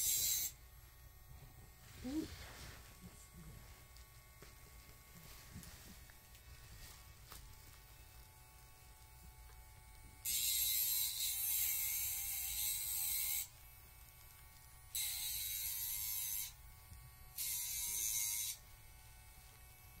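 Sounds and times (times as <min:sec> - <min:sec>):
electric nail grinder whirring: 0:00.0 - 0:00.7, 0:07.9 - 0:20.0.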